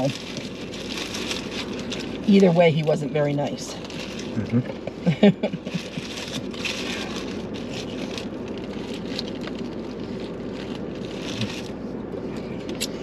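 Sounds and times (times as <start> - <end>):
food wrappers crinkling: 0.0 - 2.6, 3.6 - 4.9, 5.6 - 11.8
car cabin hum: 0.0 - 13.0.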